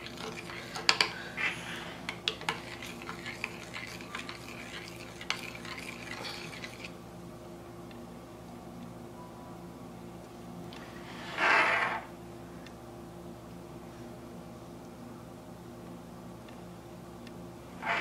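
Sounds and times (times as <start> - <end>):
spoon stirring liquid soap: 0.0 - 1.2, 2.0 - 7.0.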